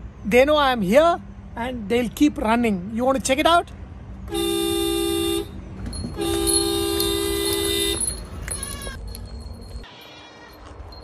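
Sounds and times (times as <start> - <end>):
car horn honking: 4.3 - 9.0.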